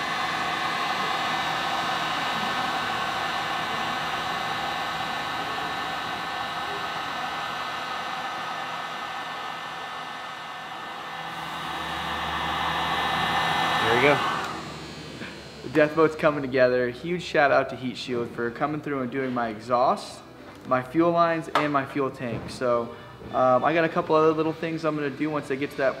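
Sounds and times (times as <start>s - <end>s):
heat gun blowing: 0.0s - 16.8s.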